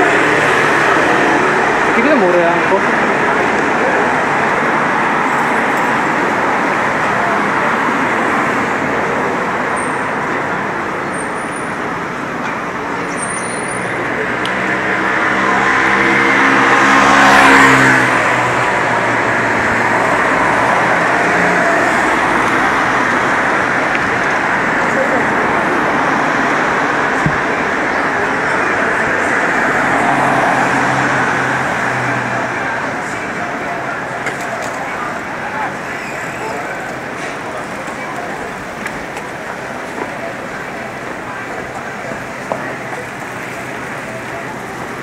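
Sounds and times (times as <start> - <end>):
city street traffic: 0.0 - 45.0
car passing close by: 14.2 - 23.9, 24.8 - 33.2.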